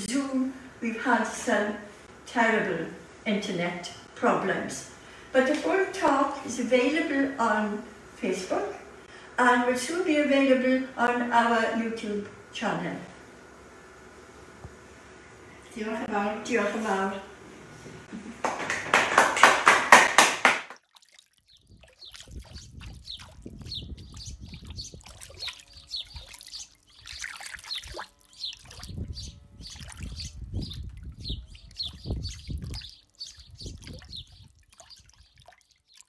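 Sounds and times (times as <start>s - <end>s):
audience clapping: 18.4s - 20.8s
water dripping: 20.7s - 28.9s, 31.7s - 36.0s.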